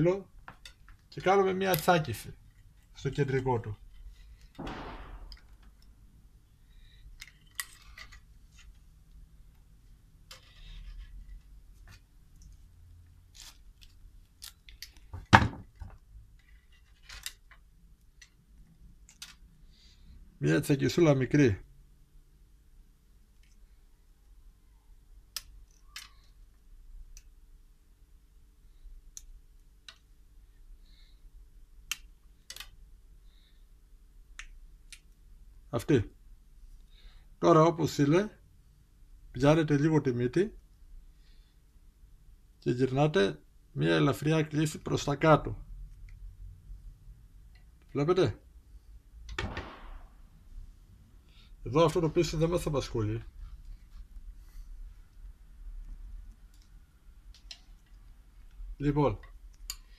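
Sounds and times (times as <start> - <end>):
pliers clicking on wire: 0.5 - 3.0, 13.3 - 15.1, 15.8 - 19.5, 25.3 - 26.3, 31.8 - 32.8
steel wire clicks and scrapes: 3.7 - 4.6, 6.7 - 9.2, 10.2 - 15.1, 16.2 - 19.6, 59.2 - 59.9
sharp knock: 4.6 - 5.4, 49.4 - 50.2.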